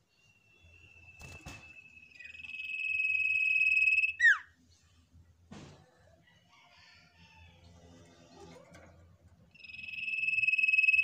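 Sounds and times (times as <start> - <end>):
bird trilled whistle: 0.4 - 4.5, 9.6 - 11.0.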